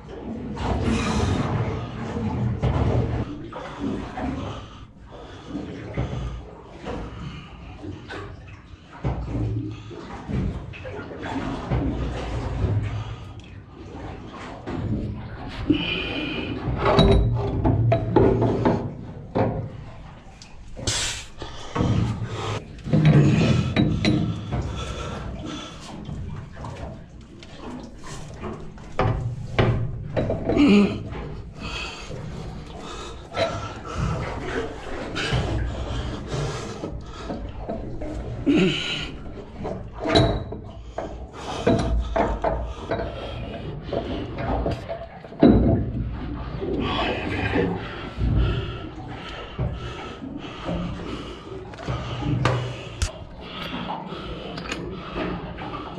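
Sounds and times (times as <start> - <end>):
metal clunks and knocks: 16.6 - 20.1, 21.7 - 25.0, 28.3 - 31.5, 39.3 - 46.7.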